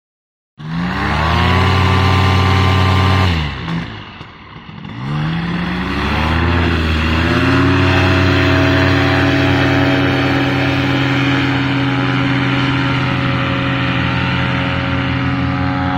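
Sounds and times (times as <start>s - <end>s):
paramotor engine revving: 0.6s - 15.9s.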